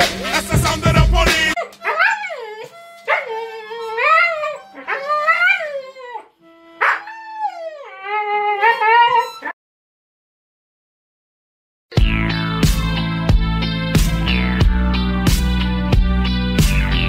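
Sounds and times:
music: 0.0 - 5.0, 6.4 - 6.8, 11.9 - 17.0
huskies howling: 1.5 - 9.5.

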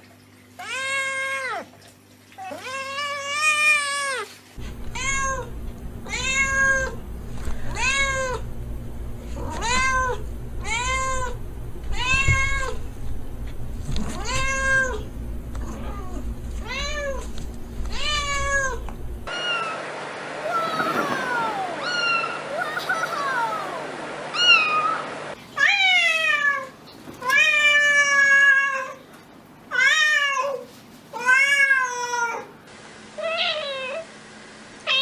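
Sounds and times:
low hum: 4.6 - 25.4
cat meowing: 4.9 - 7.0, 7.6 - 8.5, 9.3 - 12.8, 14.0 - 17.2, 17.9 - 19.8, 20.4 - 25.0.

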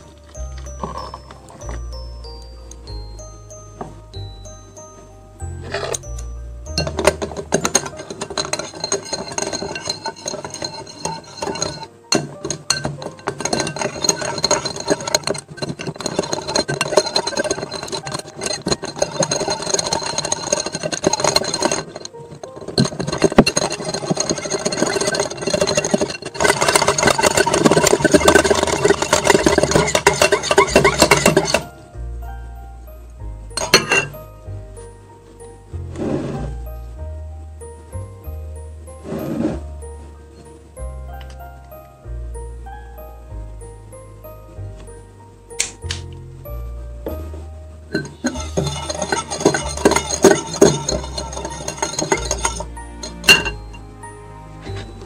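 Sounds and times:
whisk clinking against glass bowl: 5.7 - 31.8, 33.5 - 34.5, 47.9 - 53.8.

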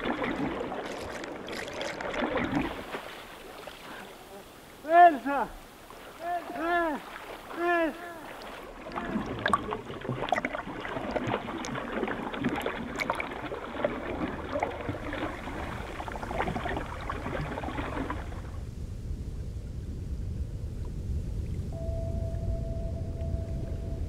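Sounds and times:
underwater bubbles gurgling: 0.0 - 3.5, 8.3 - 18.7
water lapping: 0.0 - 18.6
wind rumble: 13.4 - 24.0.

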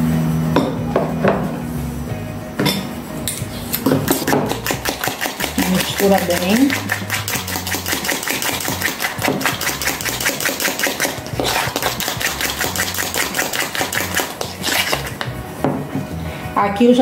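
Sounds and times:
utensil beating eggs in bowl: 4.1 - 15.4.

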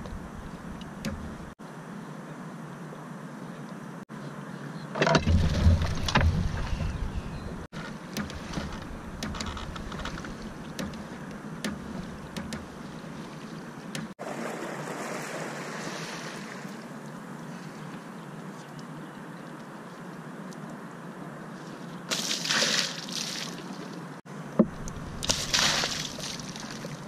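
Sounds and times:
harbour water: 0.0 - 27.0.

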